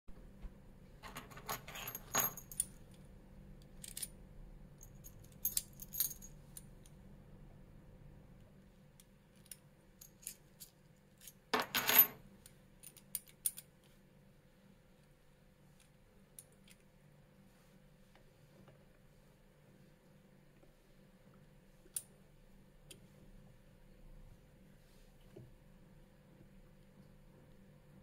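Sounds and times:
keys jangling against padlock: 0:01.0 - 0:02.8, 0:04.8 - 0:06.3.

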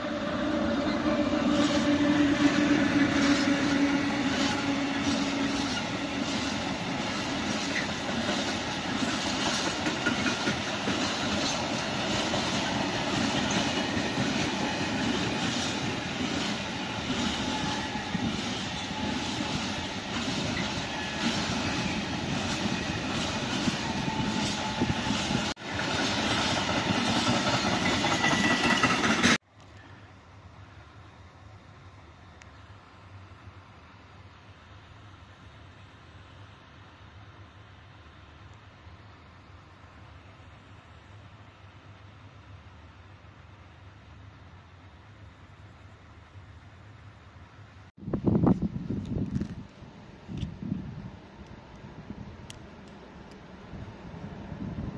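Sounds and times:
train wagons rattling by: 0:00.0 - 0:29.4
electric locomotive humming: 0:00.0 - 0:54.9
wheels clacking over rail joints: 0:02.9 - 0:29.4.

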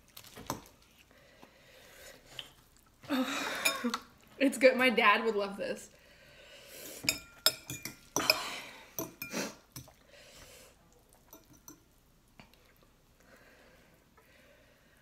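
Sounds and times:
forks clinking on ceramic bowl: 0:07.0 - 0:08.4, 0:11.3 - 0:11.8.

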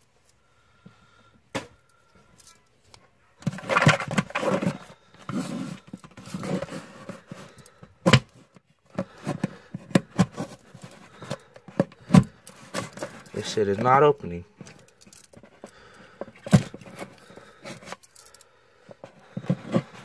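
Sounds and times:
fingers scraping cardboard: 0:19.1 - 0:20.0.

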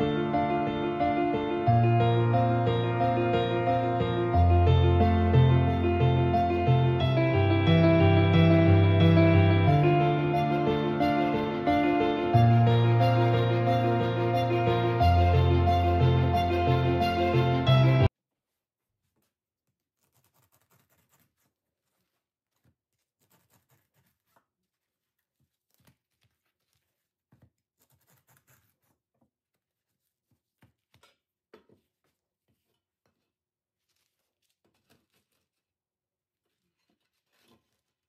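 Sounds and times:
rustles of bread on cloth: 0:18.3 - 0:30.8, 0:33.8 - 0:35.7.

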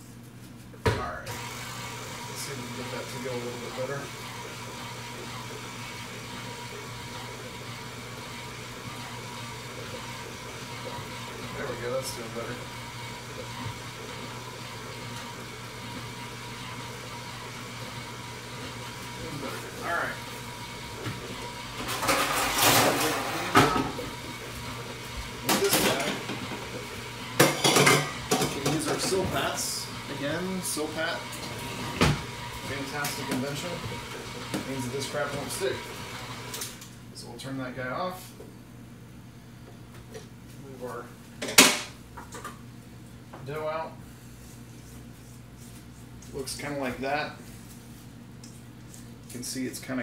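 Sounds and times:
stand mixer humming: 0:01.3 - 0:36.9
metal pans clattering: 0:21.8 - 0:24.0, 0:27.4 - 0:29.2.

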